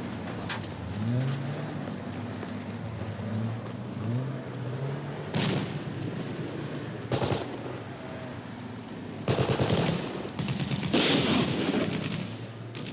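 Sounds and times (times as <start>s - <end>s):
machine-gun fire bursts: 7.1s - 7.6s, 9.2s - 12.9s
single gunshot: 9.3s - 12.9s.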